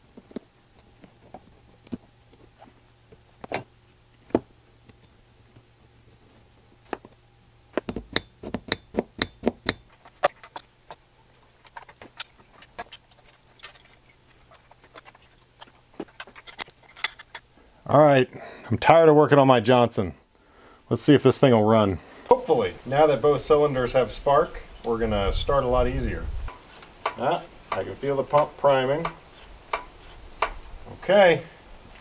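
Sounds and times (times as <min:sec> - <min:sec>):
small metal parts clicking: 0:09.2 - 0:17.5.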